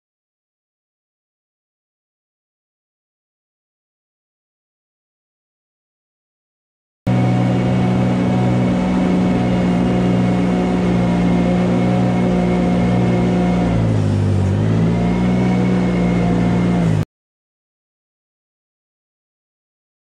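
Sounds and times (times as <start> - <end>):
loader engine running: 7.1 - 17.0
scraper blade pushing manure: 7.1 - 17.0.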